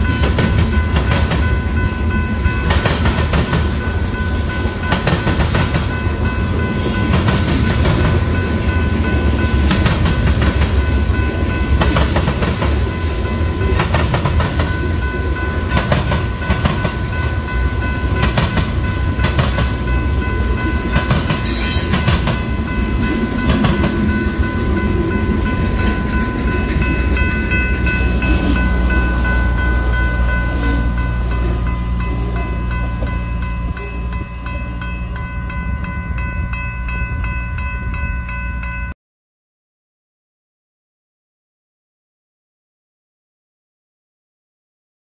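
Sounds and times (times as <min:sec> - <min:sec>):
train wheels clacking over crossing: 0:00.0 - 0:34.3
steady high ringing tones: 0:00.0 - 0:39.0.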